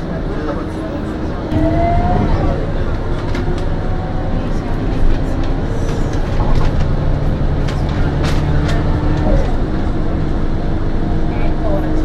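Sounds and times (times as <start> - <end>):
bus engine running: 0.0 - 12.0
road rumble: 0.0 - 12.0.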